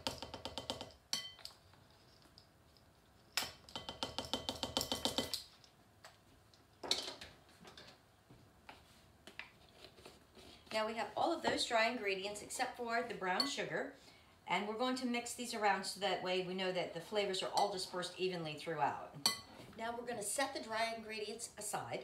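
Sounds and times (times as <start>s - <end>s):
spoon clinking against glass bowl: 1.2s - 1.6s, 19.2s - 19.5s.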